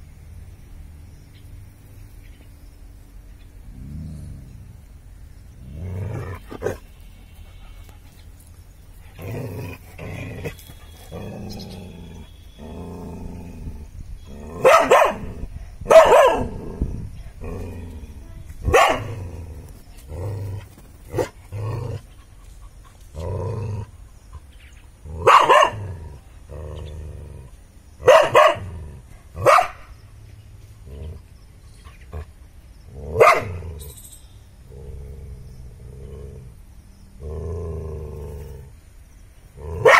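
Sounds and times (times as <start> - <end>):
dog growling: 3.7 - 8.0, 9.0 - 15.6, 19.0 - 22.2, 23.0 - 24.1, 25.0 - 27.6, 34.7 - 36.6, 37.2 - 38.7
dog barking: 14.6 - 16.5, 18.7 - 19.2, 25.2 - 25.9, 28.0 - 28.7, 29.4 - 29.8, 33.2 - 33.6.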